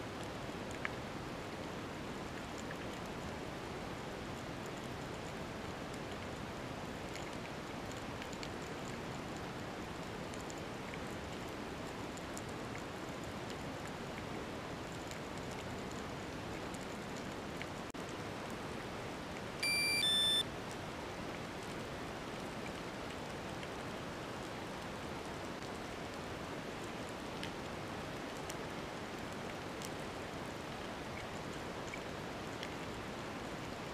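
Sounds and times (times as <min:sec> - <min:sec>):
short electronic beeps: 0:19.6 - 0:20.4.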